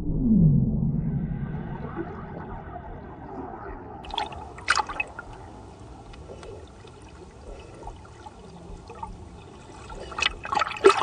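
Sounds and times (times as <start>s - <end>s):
underwater water wash: 0.0s - 11.0s
small underwater pops: 4.0s - 5.5s.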